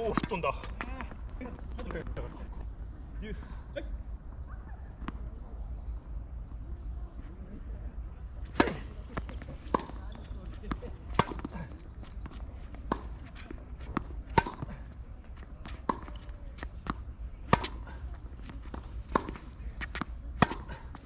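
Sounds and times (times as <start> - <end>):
tennis ball struck by rackets: 8.4 - 10.0, 10.7 - 14.9, 15.6 - 21.0
tennis ball bouncing on court: 8.4 - 21.0.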